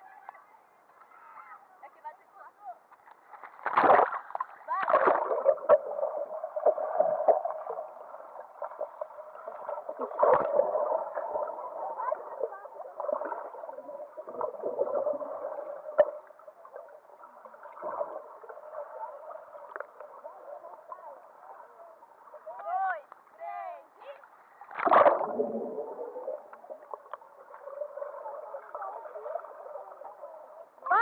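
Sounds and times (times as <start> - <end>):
sharp knocks underwater: 3.0 - 6.0, 15.8 - 16.4, 24.8 - 27.7
muffled underwater bubbling: 4.7 - 22.1, 24.7 - 31.0.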